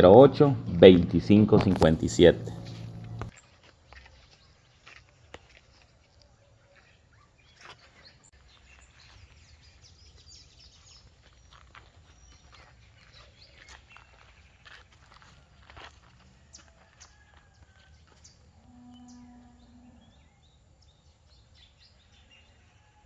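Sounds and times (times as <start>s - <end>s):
low steady rumble: 0.0s - 3.3s.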